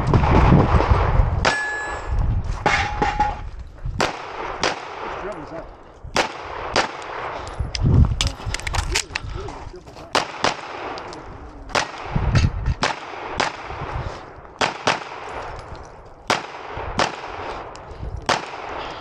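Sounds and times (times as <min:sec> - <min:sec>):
steel targets ringing: 0:01.4 - 0:03.4
pistol shots: 0:04.0 - 0:07.5, 0:10.1 - 0:13.9, 0:14.5 - 0:15.6, 0:16.2 - 0:19.0.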